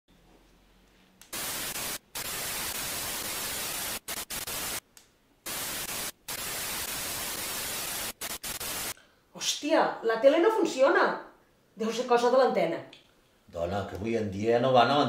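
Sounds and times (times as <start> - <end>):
television static hiss: 1.3 - 9.0.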